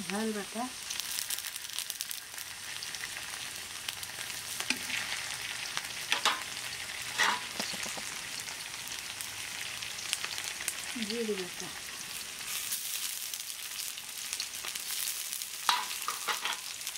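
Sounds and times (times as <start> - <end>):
onions sizzling in oil: 0.0 - 16.9
spatula scraping a pan: 4.6 - 5.3, 7.1 - 8.2, 15.7 - 16.8.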